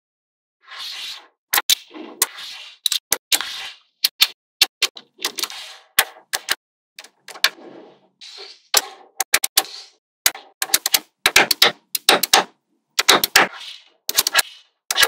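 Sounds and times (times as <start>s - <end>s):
magnetic balls clicking: 10.3s - 13.4s.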